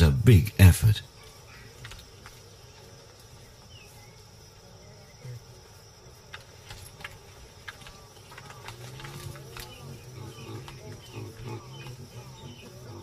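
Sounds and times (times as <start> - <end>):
faint clicks: 1.2 - 3.6, 6.2 - 12.0.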